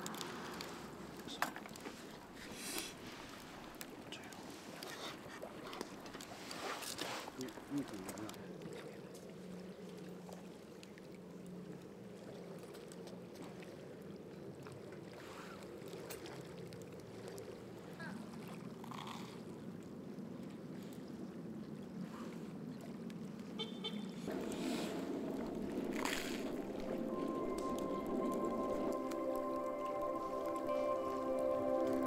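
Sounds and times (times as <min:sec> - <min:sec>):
small wood fire crackling: 0:00.0 - 0:09.2, 0:24.3 - 0:32.0
low steady rumble: 0:24.0 - 0:32.0.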